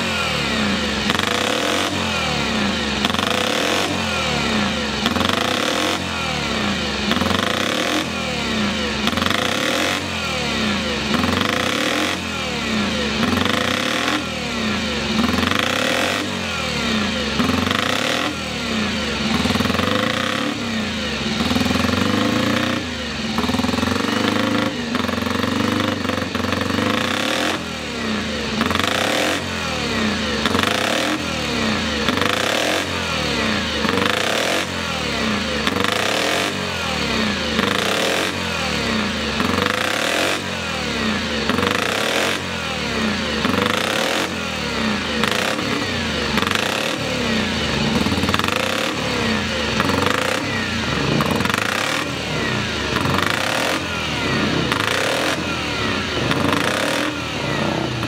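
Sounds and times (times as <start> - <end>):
racing engine revving: 0.0 - 58.0.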